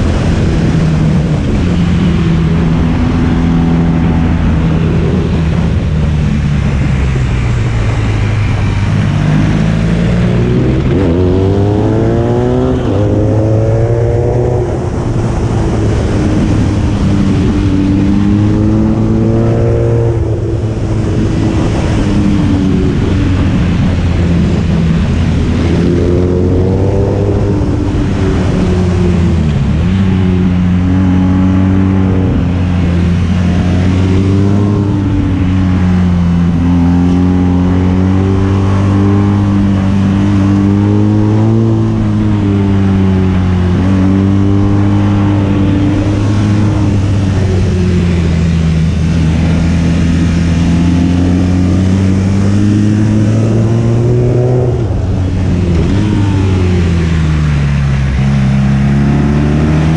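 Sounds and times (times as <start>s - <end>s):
motorcycle engine accelerating: 0.0s - 59.9s
wind noise: 0.0s - 59.9s.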